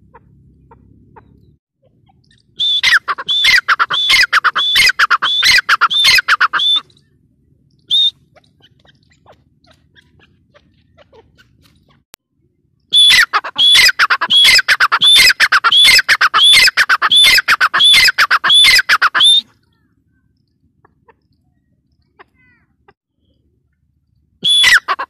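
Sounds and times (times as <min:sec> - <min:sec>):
bird calling quick repeated notes: 0:02.2 - 0:07.1, 0:07.8 - 0:12.0, 0:12.9 - 0:19.6, 0:24.4 - 0:25.0.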